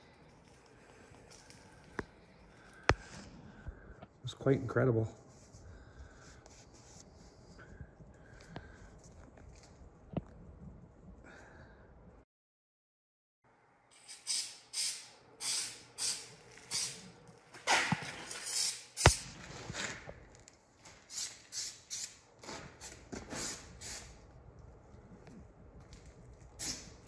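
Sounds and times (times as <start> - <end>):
aerosol spray hissing: 23.3 - 24.1, 26.6 - 27.0.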